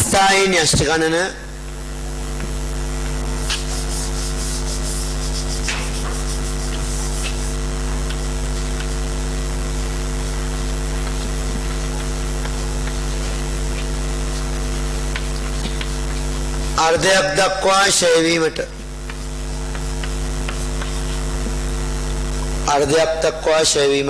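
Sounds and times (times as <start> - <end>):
electrical mains hum: 0.0 - 24.0
hand rubbing chalkboard: 2.9 - 17.5, 18.6 - 22.2
chalk scratching on board: 3.4 - 9.4, 10.6 - 16.8, 18.7 - 21.6.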